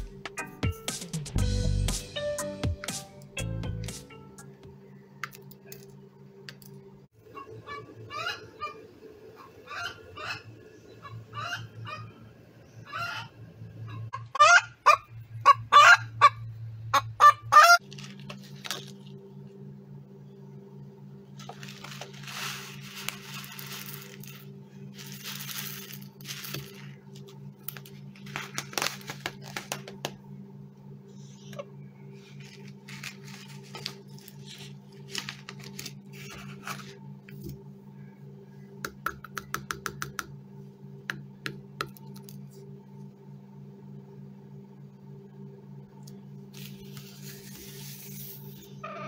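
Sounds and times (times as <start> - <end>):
steady low hum: 3.0 - 49.0
foil bag crinkling: 17.8 - 19.2, 21.4 - 30.0, 32.3 - 37.0
grains clattering into plastic bowl: 21.4 - 27.1.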